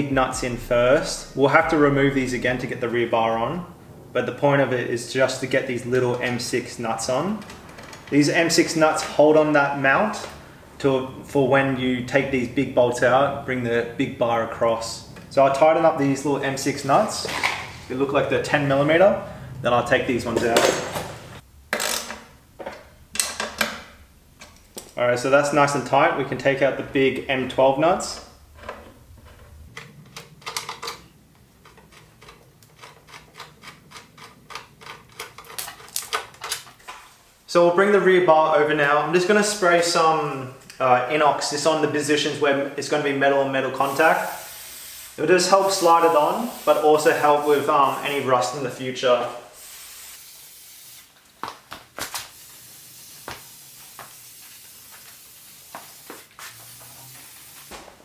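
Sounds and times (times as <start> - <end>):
steady hiss: 0.0 - 21.6, 22.3 - 51.4, 52.0 - 58.0
nuts clicking on bolts: 29.8 - 36.9.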